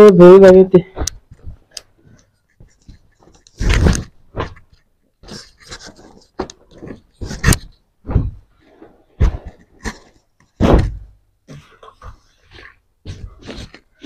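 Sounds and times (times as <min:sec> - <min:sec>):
cloth rustling: 0:00.8 - 0:14.0
thump: 0:08.0 - 0:08.4, 0:10.6 - 0:11.2.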